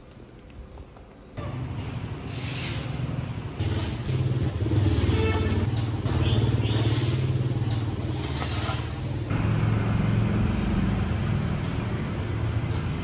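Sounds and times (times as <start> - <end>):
engine running: 2.9 - 13.0.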